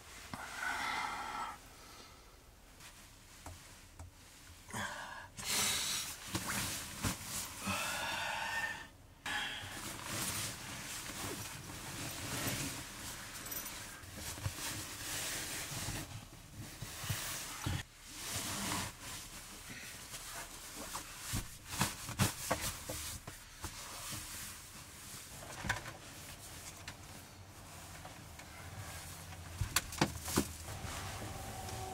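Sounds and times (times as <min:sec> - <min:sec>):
sleeping bag rustling: 0:09.7 - 0:31.9.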